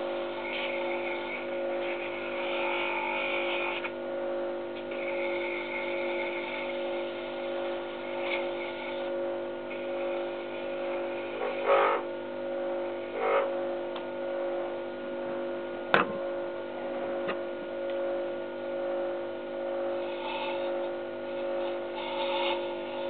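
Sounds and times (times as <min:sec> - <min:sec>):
tool scraping spinning wood: 0:00.0 - 0:04.0, 0:04.9 - 0:12.1, 0:12.9 - 0:13.6, 0:19.6 - 0:23.0
wood lathe motor humming: 0:00.0 - 0:23.0.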